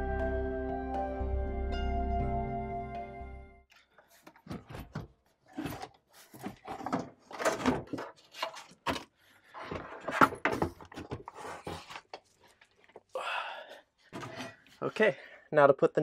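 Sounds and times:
metal box scraping and knocking on wood: 4.2 - 12.2.

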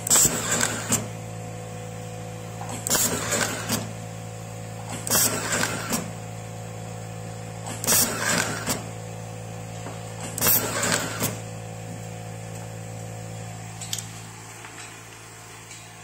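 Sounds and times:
strapping machine whirring and clicking: 0.0 - 1.3, 2.5 - 6.3, 7.4 - 9.0, 9.7 - 11.6.

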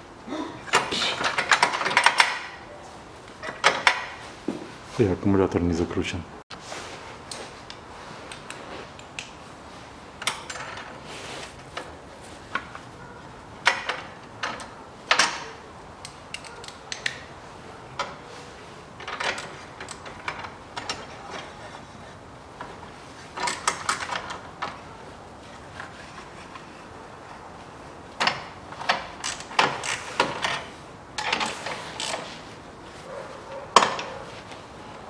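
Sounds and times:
ratchet wrench clicking: 29.2 - 30.6.

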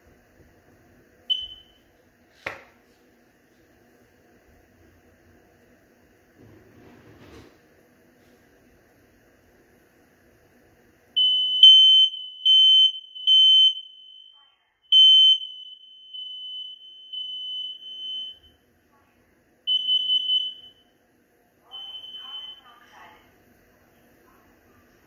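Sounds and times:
smoke alarm beeping: 1.3 - 1.9, 11.2 - 18.6, 19.7 - 20.9, 21.6 - 22.8.

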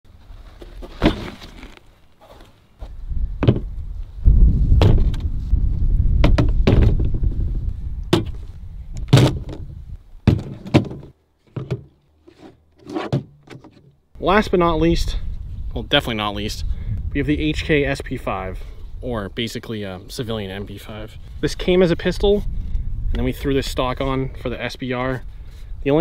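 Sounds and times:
low rumble: 2.9 - 10.0.

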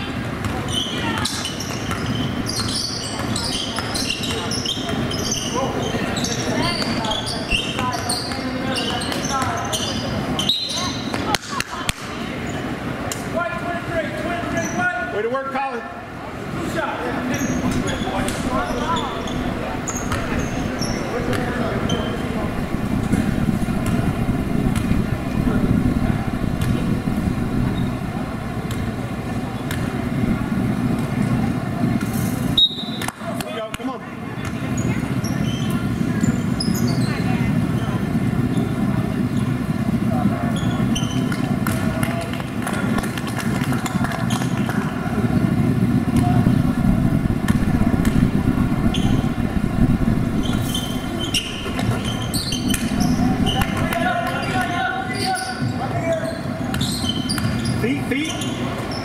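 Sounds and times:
gymnasium background rumble: 0.0 - 59.0
sneakers squeaking on floor: 0.4 - 11.1, 17.2 - 29.0, 40.5 - 41.5, 46.1 - 59.0.

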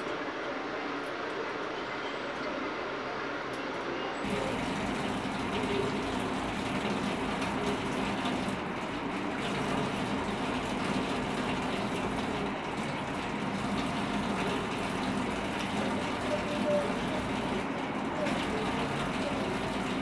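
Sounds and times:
kitchen tap running: 4.2 - 20.0.

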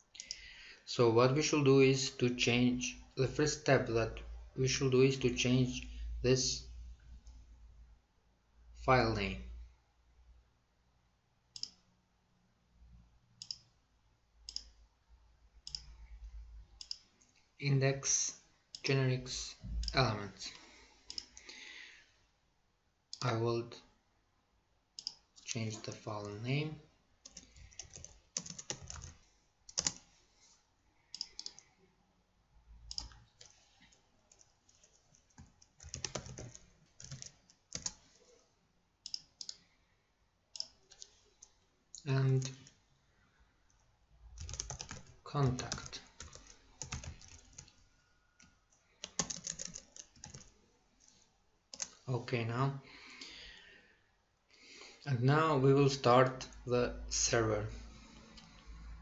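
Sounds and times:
computer keyboard typing: 27.2 - 30.1, 31.2 - 31.7, 32.9 - 38.1, 44.4 - 47.8, 48.4 - 50.5, 51.7 - 52.0
faint computer mouse clicks: 31.1 - 31.7.

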